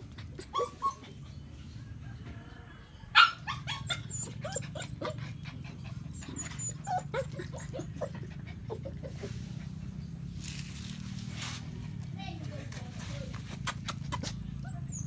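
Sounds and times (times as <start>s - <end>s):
puppy whimpering and yelping: 0.1s - 1.4s, 3.1s - 9.4s, 13.7s - 15.0s.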